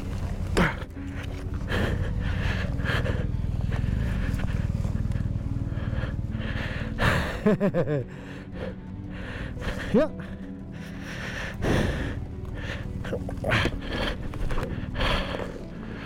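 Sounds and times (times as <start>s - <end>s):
low steady rumble: 0.0s - 7.5s
man breathing hard: 0.5s - 16.0s.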